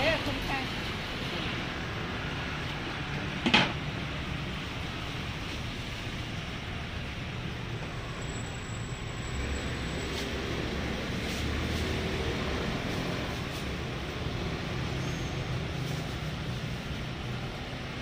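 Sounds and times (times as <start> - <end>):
road traffic noise: 0.0 - 18.0
vehicle passing by: 9.3 - 18.0.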